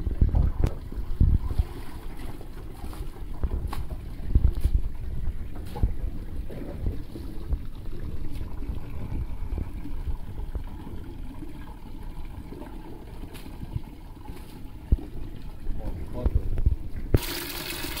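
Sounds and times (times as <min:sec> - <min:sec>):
tap water splashing into tub: 0:16.6 - 0:18.0.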